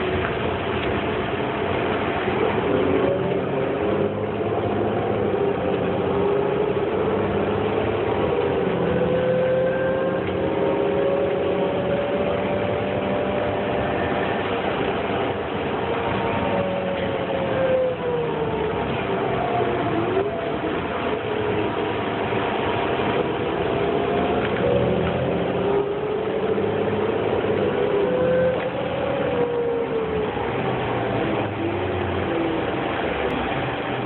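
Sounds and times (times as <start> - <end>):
bus engine drone: 0.0 - 34.0
whine rising and falling in pitch: 2.0 - 34.0.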